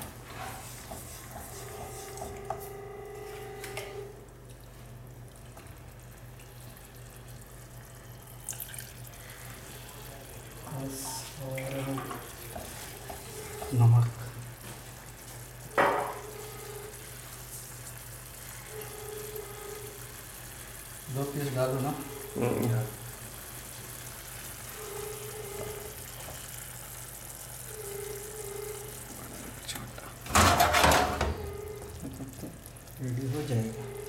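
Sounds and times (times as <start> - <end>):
faint watery sound: 4.6 - 12.6.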